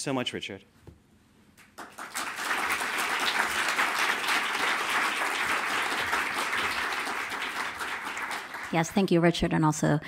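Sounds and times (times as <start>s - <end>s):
audience applauding: 1.6s - 9.1s.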